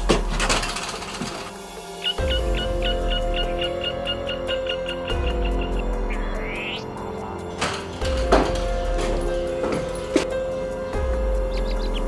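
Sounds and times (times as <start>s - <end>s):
background music: 0.0s - 12.0s
low drone: 0.0s - 12.0s
short high repeating notes: 2.0s - 7.0s.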